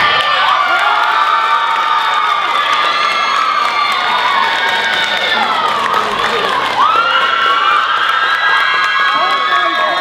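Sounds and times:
crowd cheering and screaming: 0:00.0 - 0:10.0.

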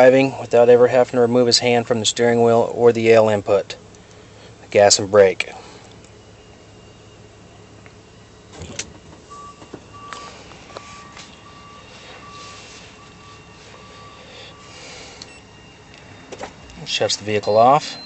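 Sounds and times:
minivan engine idling: 0:00.0 - 0:18.0
short electronic beeps: 0:06.1 - 0:18.0.

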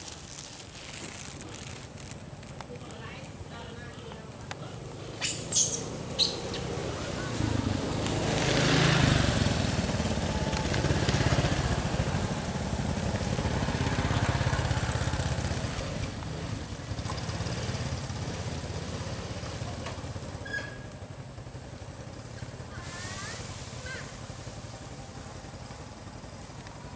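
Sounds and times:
small engine running: 0:05.6 - 0:26.9.

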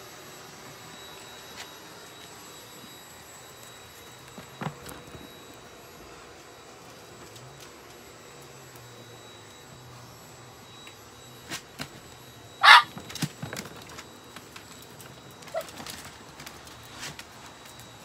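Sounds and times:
dog yapping: 0:12.6 - 0:13.0.

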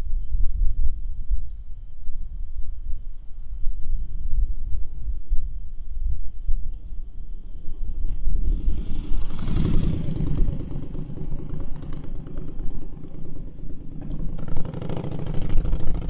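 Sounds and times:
wind rumbling on microphone: 0:00.0 - 0:16.0
vehicle engine running: 0:08.4 - 0:16.0.

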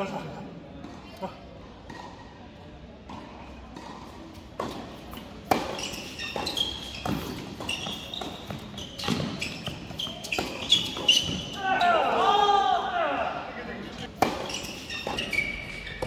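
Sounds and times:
tennis balls struck by rackets: 0:03.0 - 0:11.6, 0:14.0 - 0:16.0
shoes squeaking on court: 0:03.1 - 0:12.2, 0:13.9 - 0:16.0.

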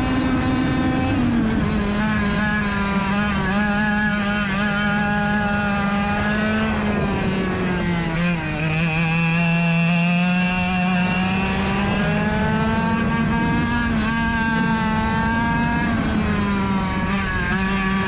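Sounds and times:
kart engine revving: 0:00.0 - 0:18.0.

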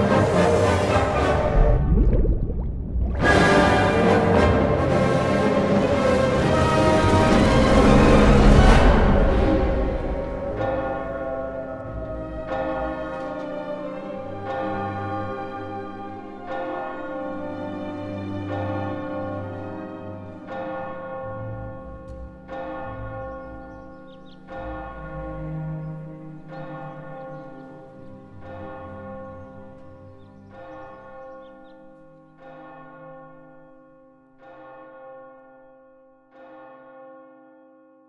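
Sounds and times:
low rumble: 0:01.2 - 0:03.7
large church bell tolling: 0:09.0 - 0:38.0.

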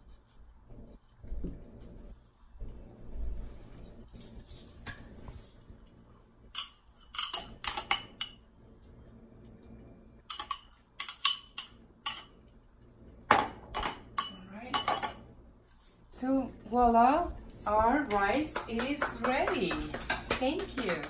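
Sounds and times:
metal spoon clinking on ceramic bowl: 0:10.3 - 0:12.3, 0:13.3 - 0:15.2.

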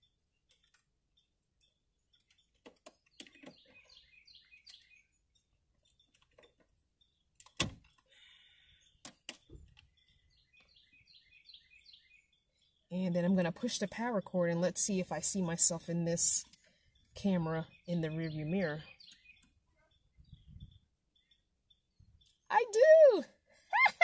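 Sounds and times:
faint bird chirps: 0:16.4 - 0:23.4.

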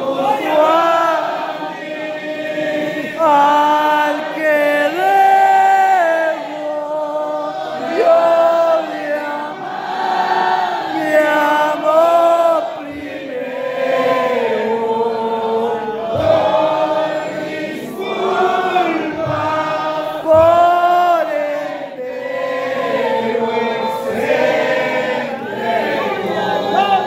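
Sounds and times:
congregation singing: 0:00.0 - 0:27.0
man singing into a microphone: 0:03.2 - 0:09.5, 0:10.9 - 0:13.6, 0:18.5 - 0:22.2.

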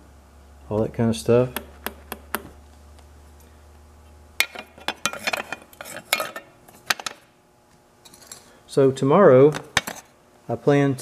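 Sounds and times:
metal clinking and scraping: 0:04.4 - 0:07.2, 0:08.0 - 0:08.5.

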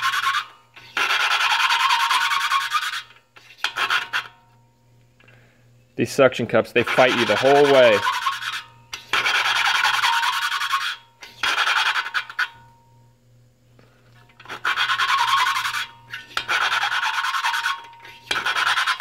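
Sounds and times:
valve lapping gritty rasping: 0:00.0 - 0:04.3, 0:06.8 - 0:12.6, 0:14.4 - 0:19.0.

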